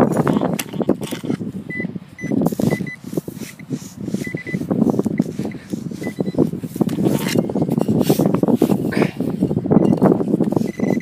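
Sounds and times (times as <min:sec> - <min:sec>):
metal detector beeping: 0:01.7 - 0:06.5, 0:07.2 - 0:07.9, 0:09.8 - 0:11.0.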